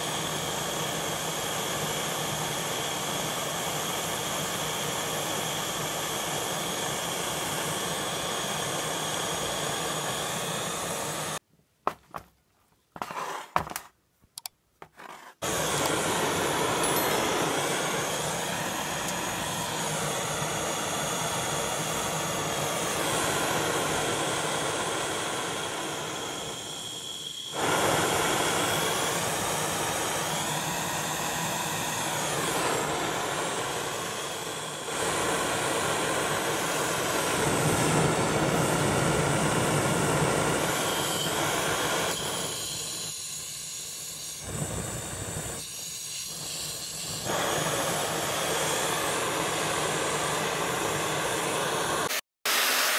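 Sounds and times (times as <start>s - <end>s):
brazing torch flame hissing: 0.0s - 11.4s, 15.4s - 52.9s.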